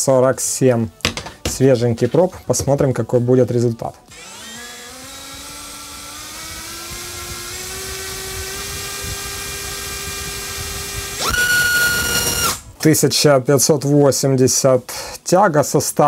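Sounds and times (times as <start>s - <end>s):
electric motor whining: 4.1s - 12.7s.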